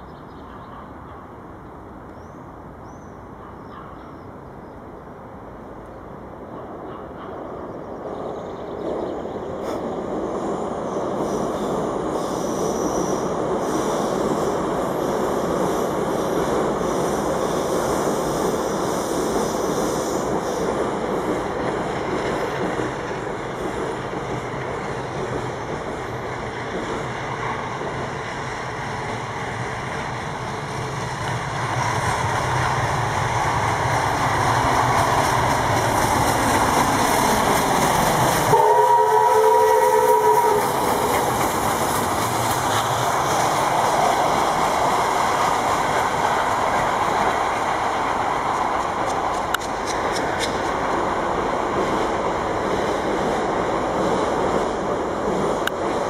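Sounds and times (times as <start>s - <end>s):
steam locomotive rumbling: 6.2s - 56.0s
steam whistle blast: 38.5s - 40.8s.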